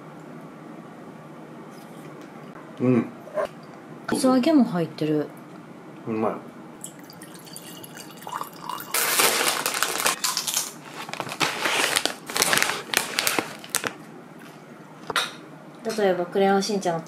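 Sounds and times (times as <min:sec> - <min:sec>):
plastic bag crinkling: 0:08.9 - 0:14.0.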